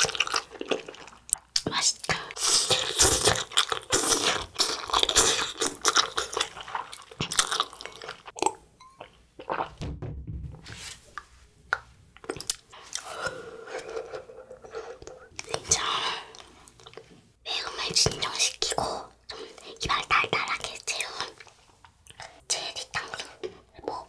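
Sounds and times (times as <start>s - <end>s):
chewing and mouth sounds: 0.0s - 9.8s.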